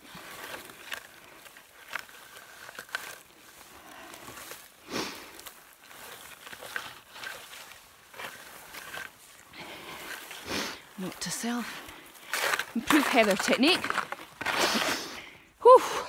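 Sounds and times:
skis rustling through heather: 0:00.0 - 0:15.6.

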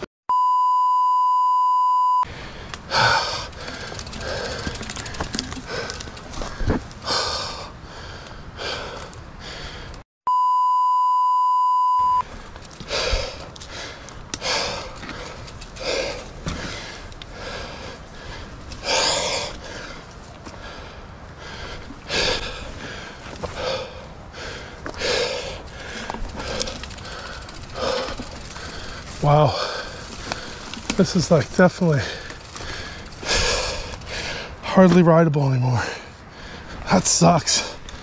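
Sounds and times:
high censor beep: 0:00.3 - 0:02.3, 0:10.3 - 0:12.2
person breathing hard: 0:02.3 - 0:10.0, 0:12.8 - 0:30.8, 0:31.8 - 0:34.6, 0:35.8 - 0:36.9.

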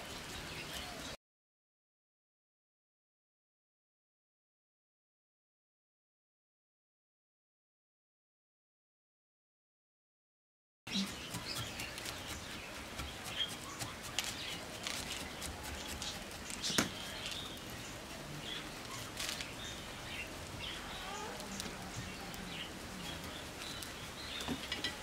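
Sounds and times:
small birds chirping: 0:00.0 - 0:01.2, 0:10.9 - 0:25.0.

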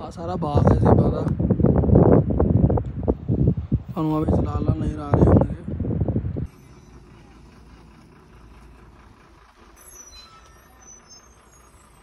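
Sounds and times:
vehicle engine running: 0:00.0 - 0:12.0
faint high squeaks: 0:06.5 - 0:12.0.

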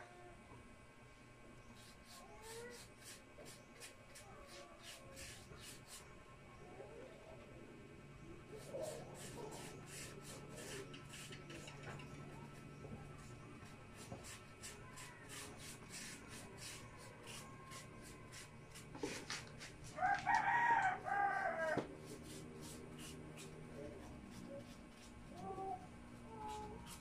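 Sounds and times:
rooster crowing: 0:19.9 - 0:21.9.

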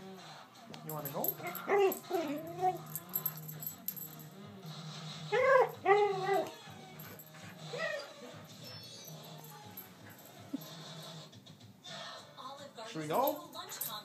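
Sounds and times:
dog whining: 0:05.3 - 0:11.0.

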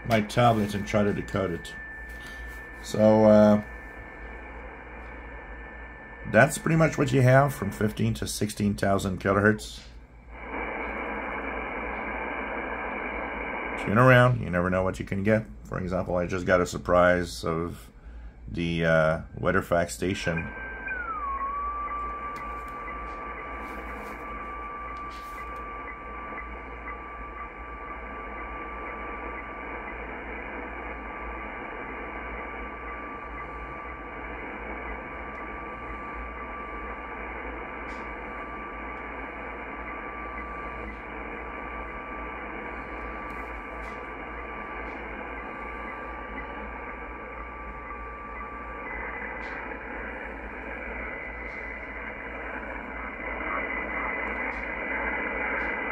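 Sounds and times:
higher radio tone: 0:00.0 - 0:17.8, 0:18.6 - 0:55.9
radio band noise hiss: 0:00.0 - 0:55.9
steady radio tone: 0:00.0 - 0:55.9.

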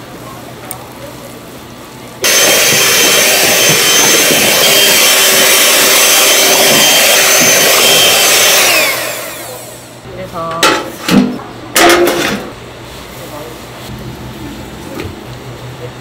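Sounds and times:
electric motor whining: 0:02.2 - 0:10.0.

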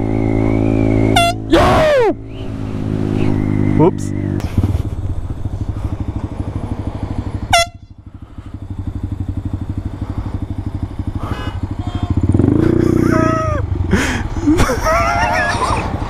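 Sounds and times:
air horn blast: 0:01.1 - 0:01.6, 0:07.5 - 0:08.0
small motorcycle engine running: 0:02.5 - 0:16.0.

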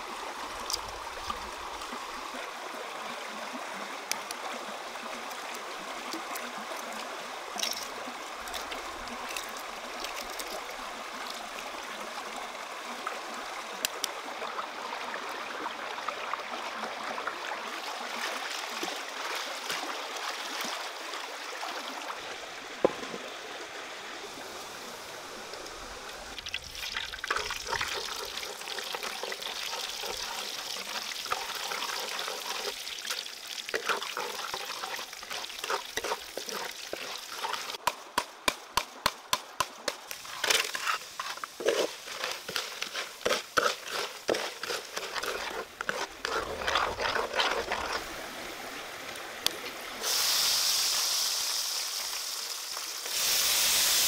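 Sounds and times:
water trickling: 0:04.0 - 0:12.0, 0:25.4 - 0:37.8.

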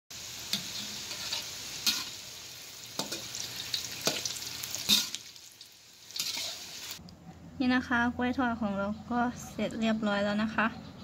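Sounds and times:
food sizzling in hot oil: 0:00.1 - 0:07.0.

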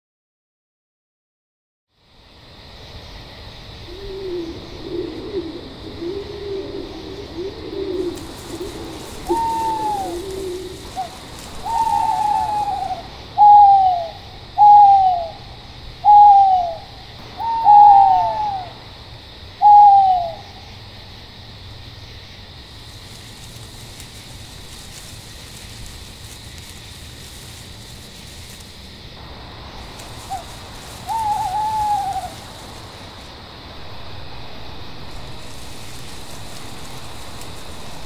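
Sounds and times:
steady high hiss: 0:02.0 - 0:38.0
owl hooting: 0:03.9 - 0:18.8, 0:19.6 - 0:20.7, 0:29.7 - 0:33.3.

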